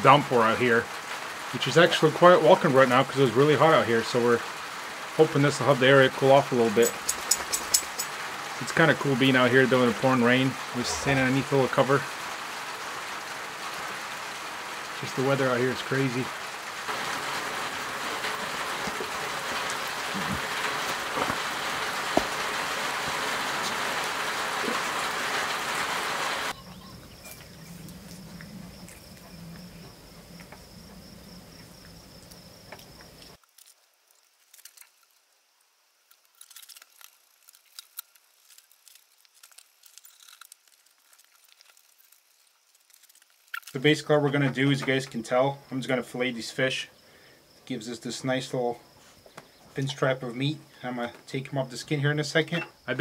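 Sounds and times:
heavy rain pouring: 0.0s - 33.4s
high insect trill: 5.4s - 25.7s, 26.4s - 53.0s.

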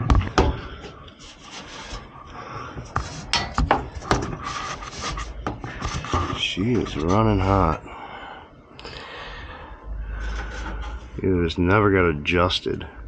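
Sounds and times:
rubbing and scraping on sheet metal: 0.0s - 7.8s, 10.1s - 11.2s.

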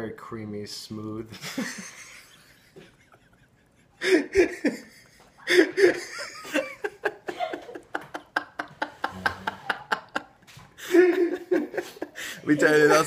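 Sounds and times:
men laughing: 1.4s - 13.0s.

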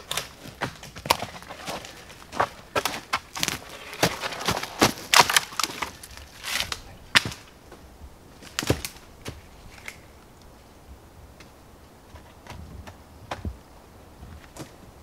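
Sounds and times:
dry branches cracking and snapping: 0.0s - 7.6s, 8.4s - 10.5s
footsteps on snowy twig-covered ground: 0.0s - 10.1s.

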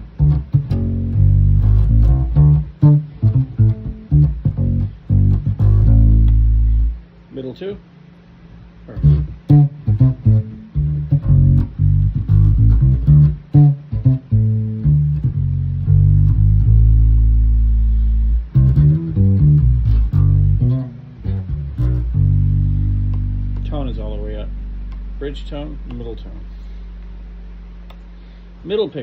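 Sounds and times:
bass guitar fingerstyle line: 0.0s - 7.8s, 8.5s - 28.4s.

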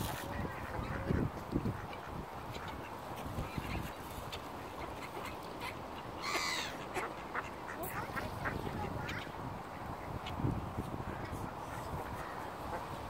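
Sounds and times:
ducks quacking: 0.0s - 10.5s.

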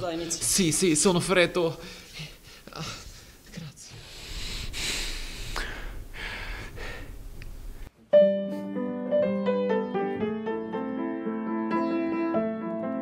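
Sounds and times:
solo piano melody: 8.1s - 13.0s.

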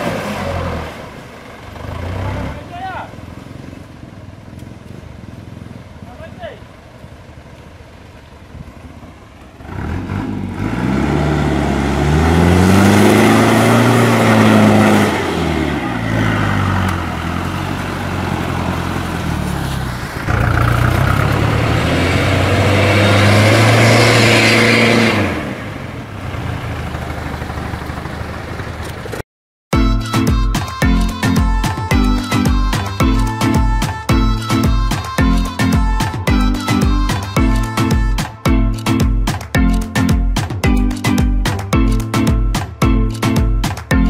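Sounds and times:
truck diesel engine revving: 0.0s - 29.2s.

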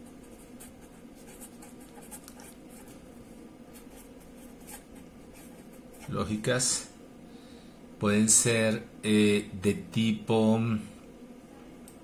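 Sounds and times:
pen scratching on paper: 0.0s - 3.0s, 3.7s - 6.2s.

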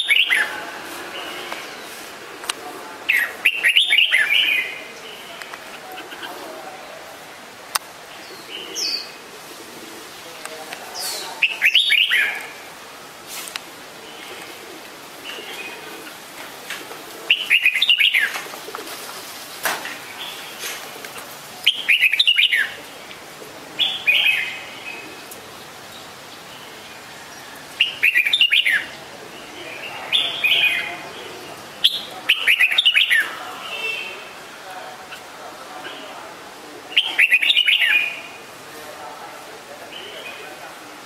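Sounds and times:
bird singing chirpy phrases: 0.0s - 0.6s, 3.0s - 6.3s, 8.1s - 9.2s, 11.0s - 12.7s, 17.3s - 18.4s, 21.6s - 23.2s, 23.8s - 34.2s, 36.9s - 38.4s.

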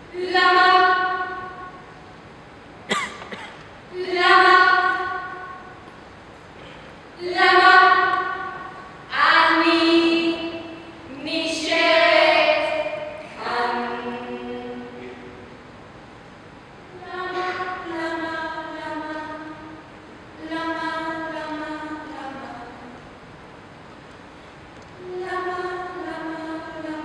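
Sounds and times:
women singing unaccompanied: 0.0s - 1.8s, 3.9s - 5.7s, 7.2s - 15.0s, 16.9s - 19.8s, 20.4s - 22.9s, 25.0s - 27.0s.

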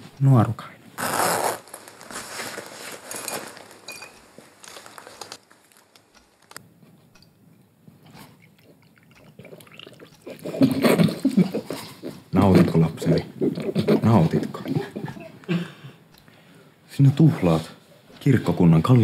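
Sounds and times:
clothing rustling: 1.0s - 6.6s
glass bottle being handled: 3.1s - 4.2s.

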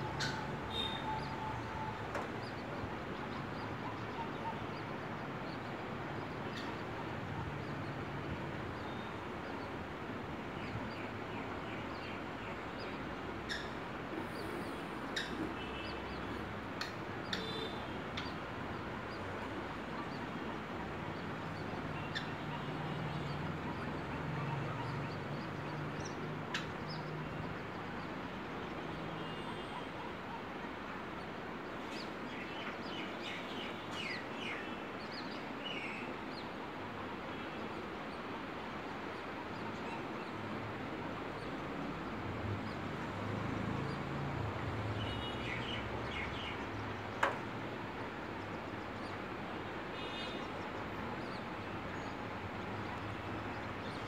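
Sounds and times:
high bird chirps: 0.0s - 2.8s
background hum and hiss: 0.0s - 54.0s.

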